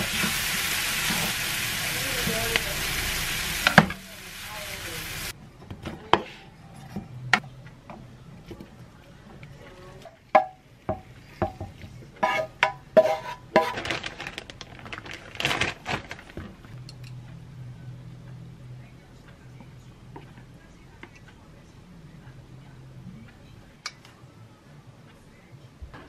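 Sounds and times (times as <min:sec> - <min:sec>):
stir-fry sizzling in a pan: 0:00.0 - 0:05.4, 0:10.0 - 0:13.9
spatula knocking pan and dishes: 0:10.3 - 0:13.8.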